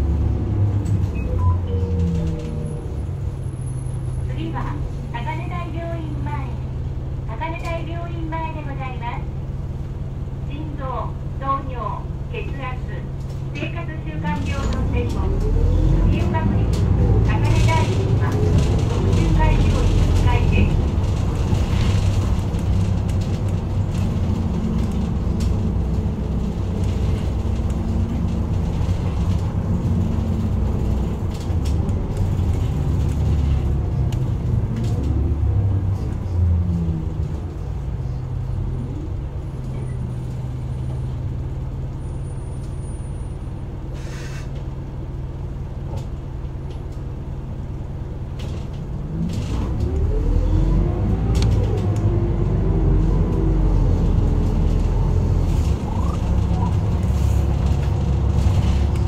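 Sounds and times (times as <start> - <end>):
bus diesel engine: 0.0 - 59.0
short air hiss: 43.9 - 44.5.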